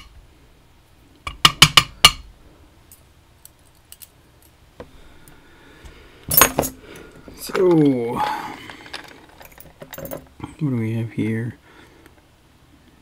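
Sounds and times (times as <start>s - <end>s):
metal lock parts clicking: 7.4s - 10.3s.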